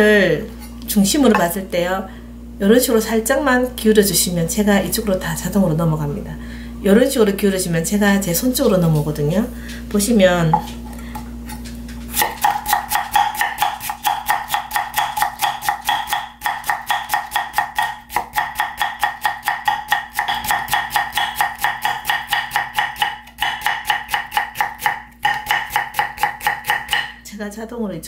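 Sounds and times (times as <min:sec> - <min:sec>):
knife chopping on wooden block: 0:12.2 - 0:27.2.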